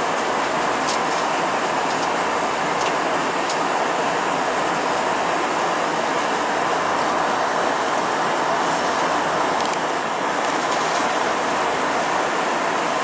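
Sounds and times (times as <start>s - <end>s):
jet engine drone: 0.0s - 13.0s.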